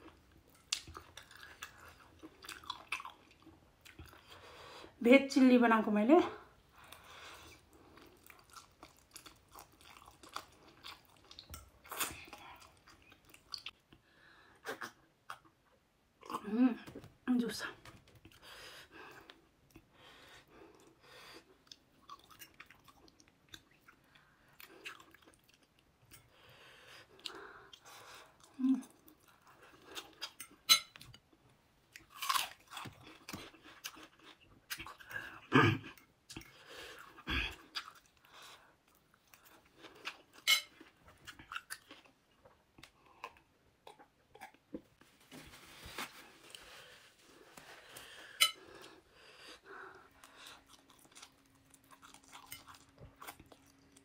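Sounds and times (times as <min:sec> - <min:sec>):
woman chewing with wet mouth sounds: 0:00.0 - 0:04.6, 0:06.8 - 0:16.6, 0:19.1 - 0:45.0, 0:46.4 - 0:54.0.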